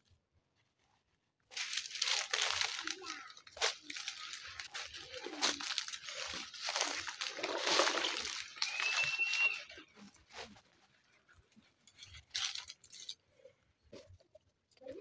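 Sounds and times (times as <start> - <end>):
sponge scrubbing plastic cups: 1.5 - 13.1
high squeak: 8.6 - 9.8.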